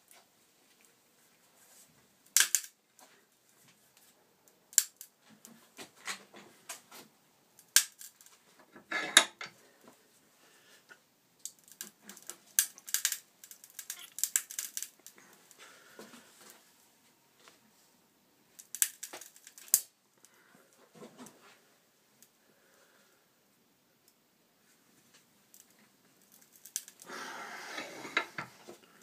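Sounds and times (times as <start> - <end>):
plastic housing creaking and cracking: 2.3 - 2.8, 11.4 - 15.3, 18.6 - 19.9, 25.5 - 27.1.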